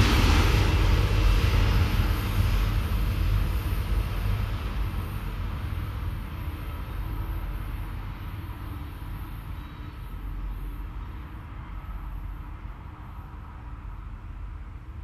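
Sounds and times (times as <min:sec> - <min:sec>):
locomotive engine rumble: 0:00.0 - 0:08.8.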